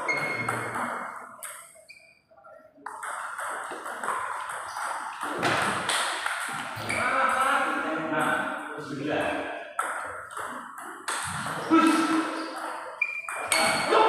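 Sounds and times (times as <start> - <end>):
ball bouncing on table: 0.1 - 1.7, 2.8 - 7.0, 9.8 - 11.7, 12.6 - 13.9.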